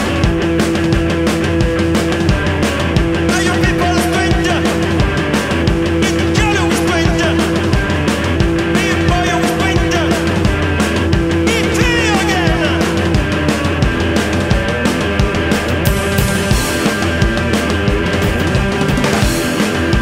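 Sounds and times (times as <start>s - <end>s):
drum kit beat: 0.0s - 20.0s
electric guitar chords: 0.0s - 20.0s
person singing: 3.2s - 4.9s, 6.0s - 7.7s, 8.6s - 10.4s, 11.4s - 13.1s.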